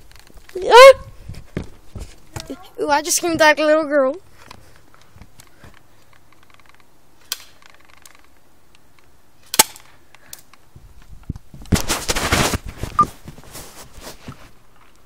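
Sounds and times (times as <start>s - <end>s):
phone scraping in jeans pocket: 11.7s - 14.6s.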